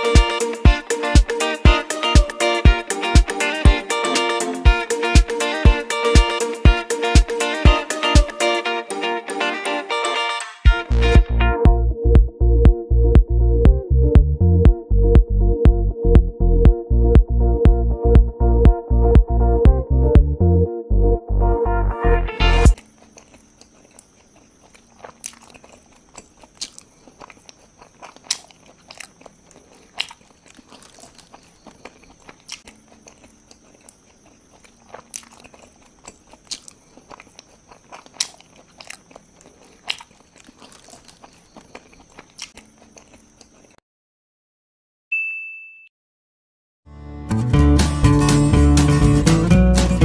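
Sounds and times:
child eating with mouth smacks: 0:22.7 - 0:43.8
bell-like ding: 0:45.1 - 0:45.9.

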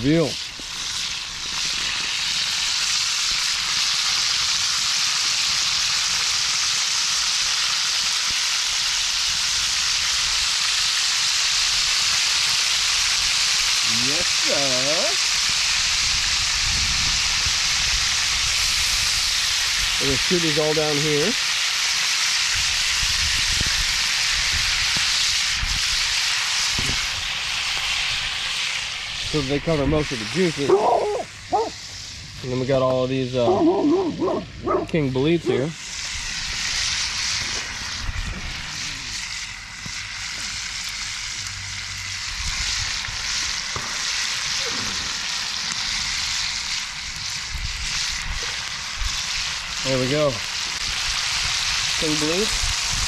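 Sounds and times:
meat sizzling in grease: 0:00.0 - 0:53.0
wind rumble on microphone: 0:15.8 - 0:20.0, 0:22.6 - 0:25.0, 0:52.5 - 0:53.0.

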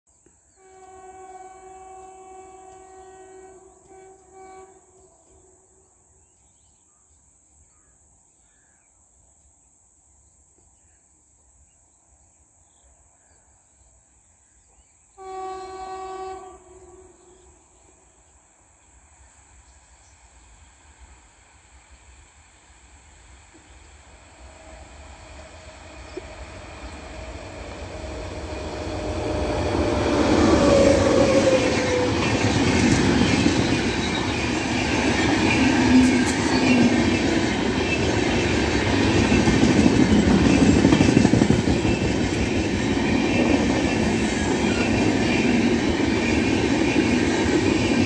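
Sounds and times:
train horn blasts: 0:00.5 - 0:06.0, 0:15.2 - 0:18.0, 0:24.4 - 0:37.3
low train rumble: 0:15.1 - 0:48.0.

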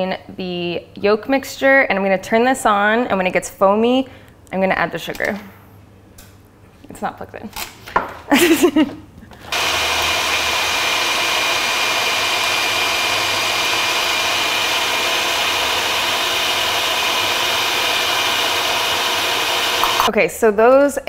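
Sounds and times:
stand mixer whisking: 0:09.5 - 0:20.1.

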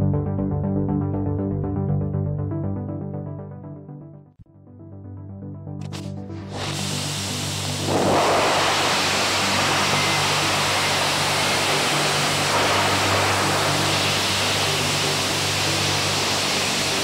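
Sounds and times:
music: 0:00.0 - 0:17.0
rocket engine exhaust rushing: 0:06.0 - 0:17.0.

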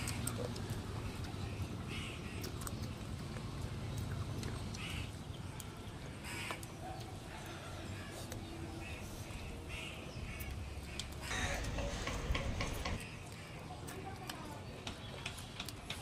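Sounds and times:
chewing: 0:00.0 - 0:01.6, 0:02.2 - 0:09.5
crows cawing: 0:06.2 - 0:06.6, 0:09.7 - 0:13.6.

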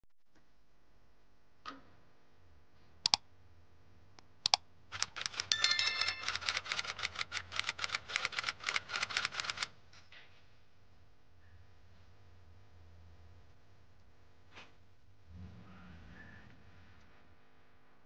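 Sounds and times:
typing-like clicks: 0:04.5 - 0:09.7
bell-like ring: 0:05.5 - 0:06.8.

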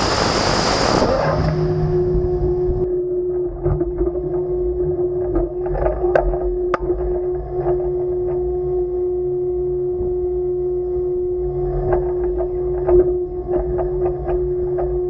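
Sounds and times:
low wind rumble: 0:00.0 - 0:03.0
steady machinery hum: 0:00.0 - 0:15.0.

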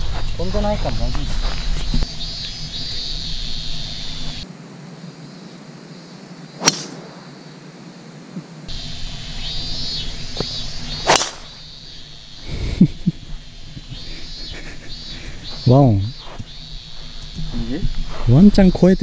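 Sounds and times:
insects shrilling: 0:00.0 - 0:19.0
golf club striking ball: 0:06.6 - 0:07.1, 0:10.3 - 0:11.6.

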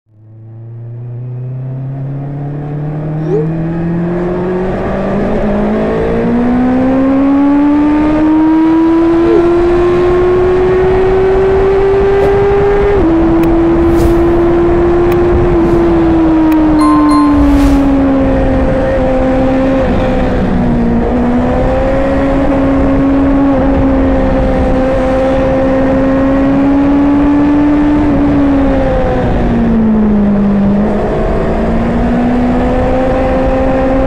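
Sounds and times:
wind rush: 0:11.9 - 0:16.6.

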